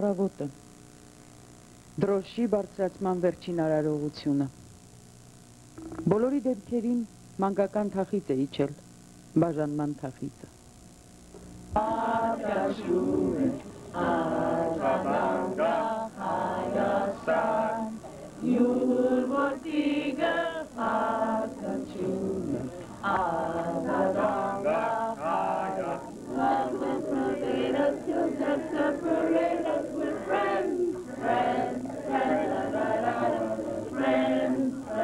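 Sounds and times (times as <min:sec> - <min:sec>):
group singing slow song: 0:11.7 - 0:35.0.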